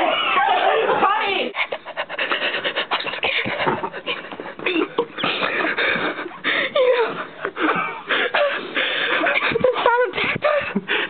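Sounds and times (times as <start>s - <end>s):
girls talking: 0.0s - 1.6s
girls laughing: 0.0s - 11.0s.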